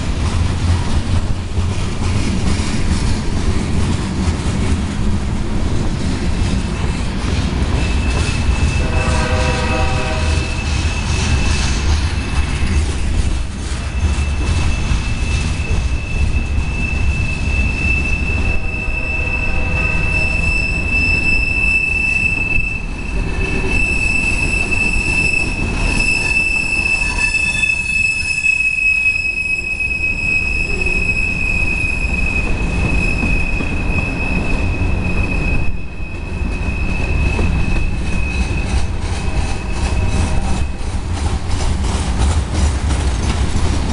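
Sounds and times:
train wheels rumbling on rail: 0:00.0 - 0:43.9
high wheel squeal: 0:07.7 - 0:12.8, 0:13.8 - 0:40.9.

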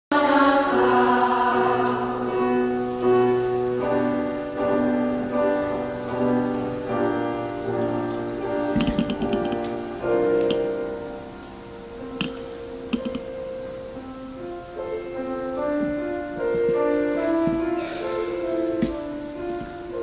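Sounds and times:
slow piano chords: 0:00.1 - 0:20.0
faint clicks: 0:12.2 - 0:13.3.

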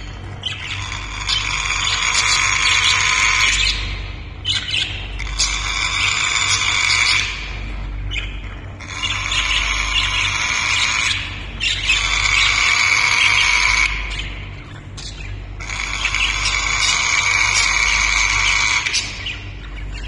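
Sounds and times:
parrot squawking: 0:00.0 - 0:14.4, 0:15.0 - 0:20.0.

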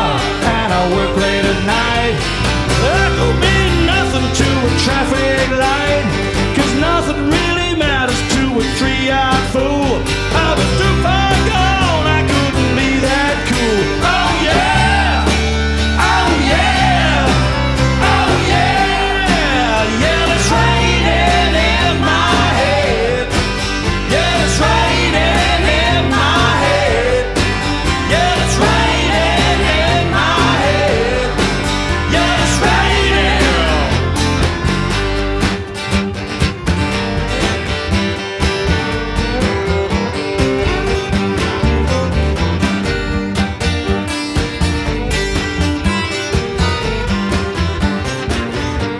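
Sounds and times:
person singing: 0:00.0 - 0:34.4
acoustic guitars strumming: 0:00.0 - 0:48.9
bass guitar: 0:00.0 - 0:48.9
drums: 0:00.0 - 0:48.9
electric guitar: 0:00.0 - 0:48.9.

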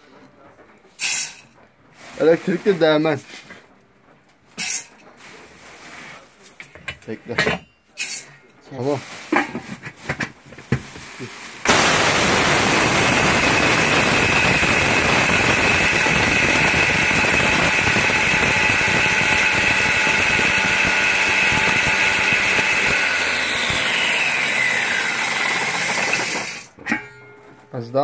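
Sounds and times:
angle grinder whine: 0:11.7 - 0:26.8.

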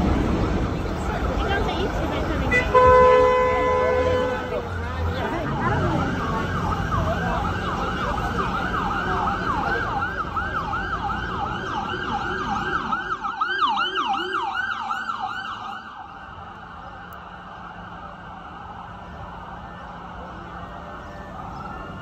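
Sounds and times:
street traffic rumble: 0:00.0 - 0:22.0
emergency siren yelping: 0:04.4 - 0:22.0.

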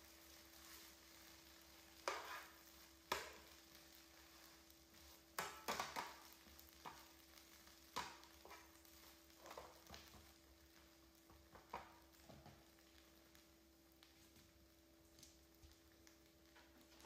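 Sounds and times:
metal spatula scraping frying pan: 0:02.0 - 0:03.4.

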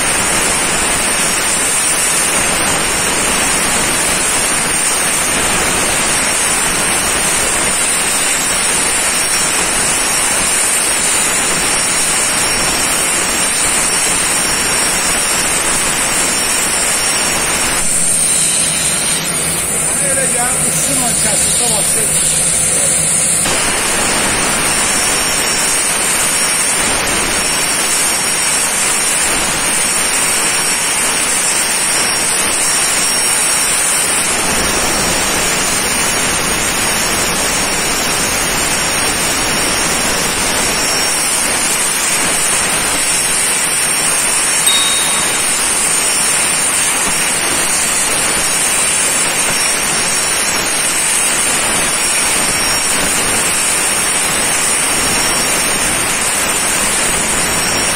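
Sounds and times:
plasma torch hissing: 0:00.0 - 0:31.2, 0:45.6 - 0:57.8
faint high whine: 0:05.0 - 0:26.7, 0:44.6 - 0:53.0.

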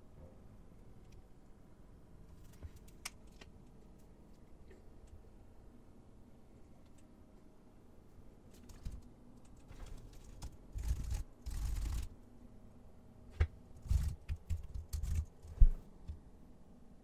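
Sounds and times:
computer keyboard typing: 0:13.8 - 0:15.6.

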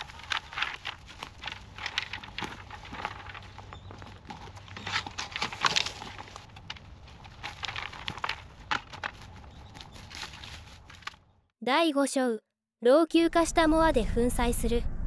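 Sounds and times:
branches snapping: 0:00.0 - 0:11.2
leafy branches rustling: 0:00.0 - 0:11.3.

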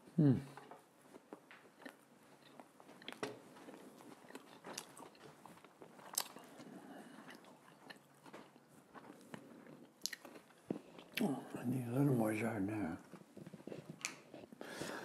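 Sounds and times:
chewing with wet mouth clicks: 0:01.3 - 0:11.3, 0:13.6 - 0:14.5.

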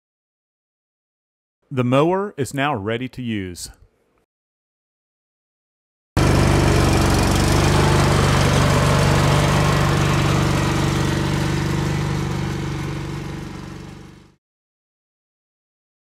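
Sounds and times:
lawn tractor engine running: 0:06.2 - 0:14.4.

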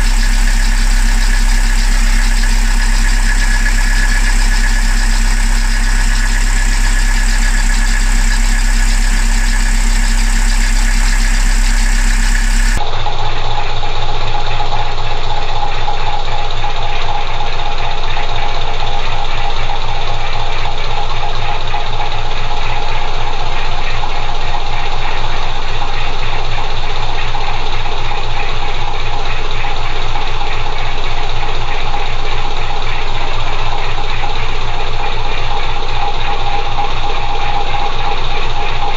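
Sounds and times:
diesel engine idling: 0:00.0 - 0:12.8.

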